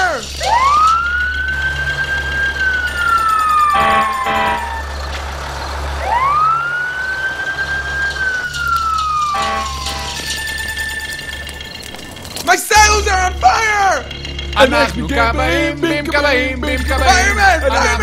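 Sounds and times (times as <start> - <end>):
fire engine siren wailing: 0.0 - 18.0
low vehicle rumble: 0.0 - 18.0.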